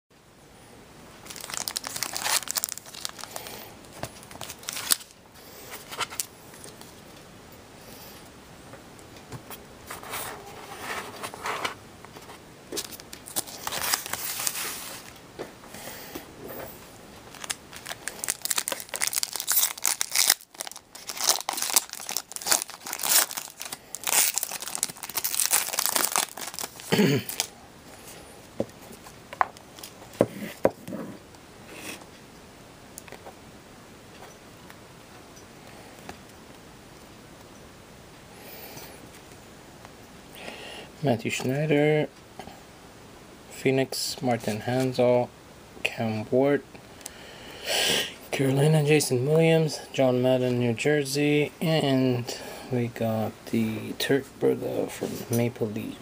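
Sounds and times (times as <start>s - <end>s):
foil wrappers tearing and crinkling: 1.2s - 3.6s, 4.2s - 5.2s, 12.8s - 15.1s, 17.3s - 27.5s.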